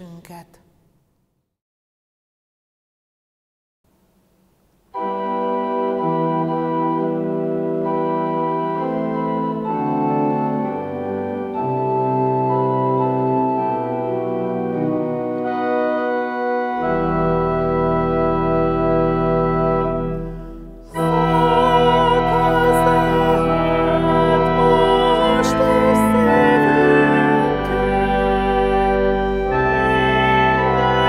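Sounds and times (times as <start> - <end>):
deep organ pedal bass notes: 4.9 - 31.0
pipe organ playing hymn chords: 4.9 - 31.0.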